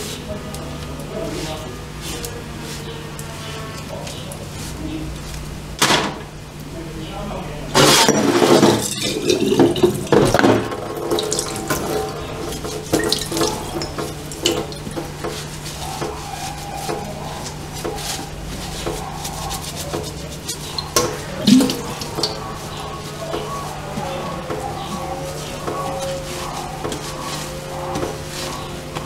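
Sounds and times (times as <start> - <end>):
glass clinking against steel: 8.0 - 10.4
tap water running into sink: 8.2 - 16.2, 20.6 - 22.6
cloth wiping glass: 8.4 - 10.3, 10.9 - 29.0.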